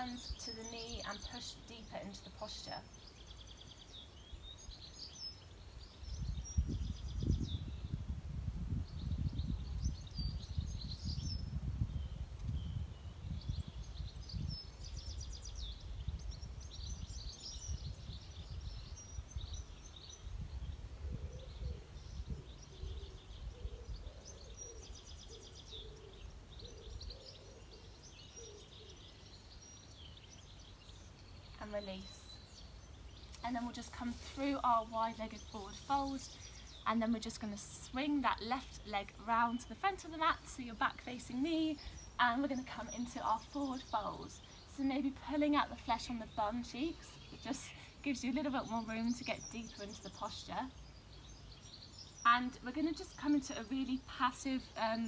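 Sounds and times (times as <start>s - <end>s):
songbirds singing and chirping: 0.0s - 55.0s
low gusty rumble: 6.0s - 24.0s
lower repeated bird calls: 8.9s - 55.0s.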